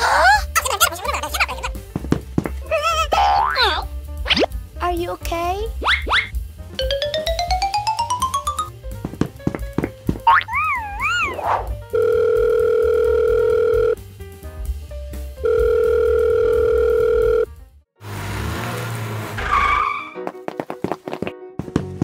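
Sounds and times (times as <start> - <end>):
telephone ringback tone: 11.9 - 14.0, 15.4 - 17.5.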